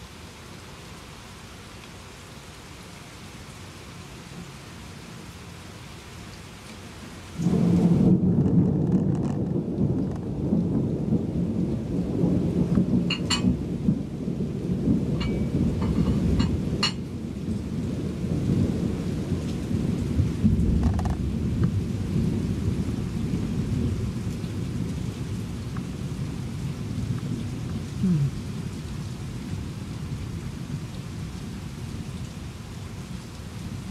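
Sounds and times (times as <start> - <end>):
steady rain: 0.0 - 33.9
thunderclap rumbling: 7.4 - 32.1.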